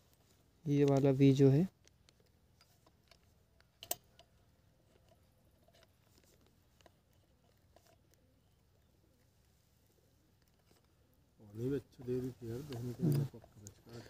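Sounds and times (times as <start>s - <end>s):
screwdriver clicks and scrapes: 1.8s - 8.7s.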